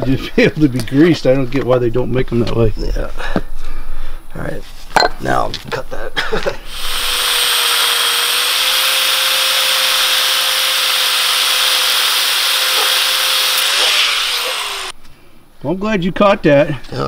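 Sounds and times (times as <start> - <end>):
angle grinder cutting steel: 6.7 - 15.0.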